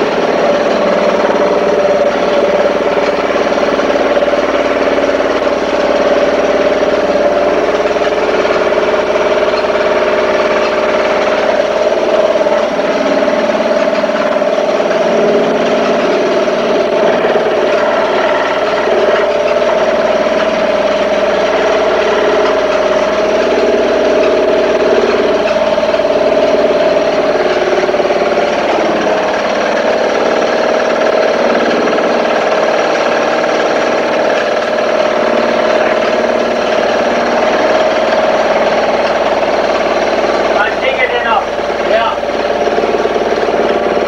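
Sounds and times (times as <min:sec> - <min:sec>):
engine running steadily: 0:00.0 - 0:44.0.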